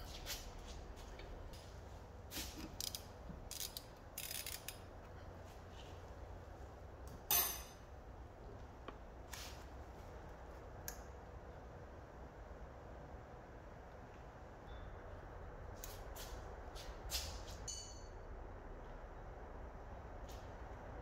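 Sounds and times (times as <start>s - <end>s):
metallic tool clicks and scrapes: 2.5s - 4.8s.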